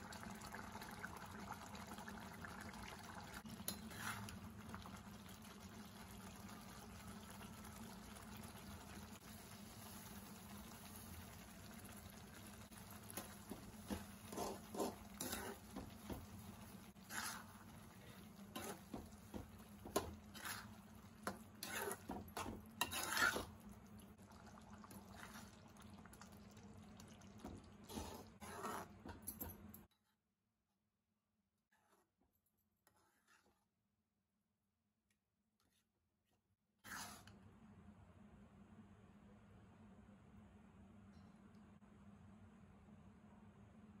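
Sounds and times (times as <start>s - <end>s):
low cooking hiss: 0.0s - 28.4s
spatula scraping a pan: 3.6s - 4.4s, 12.6s - 23.6s, 27.8s - 29.2s, 31.7s - 32.1s, 32.8s - 33.7s, 36.8s - 37.4s.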